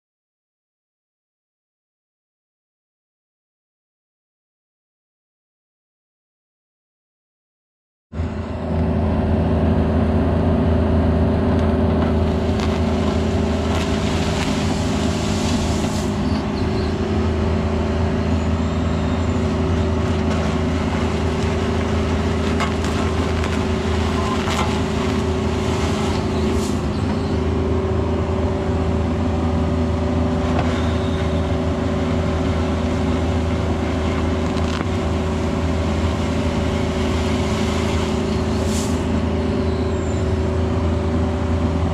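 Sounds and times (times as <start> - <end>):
excavator diesel engine running: 8.2 - 41.9
bucket knocking and scraping gravel: 12.0 - 16.2, 20.0 - 26.9.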